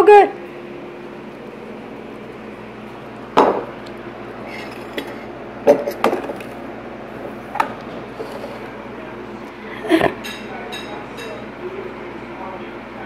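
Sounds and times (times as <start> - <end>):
steady low hum: 0.0 - 13.0
ceramic bowl knocking on table: 3.4 - 3.7.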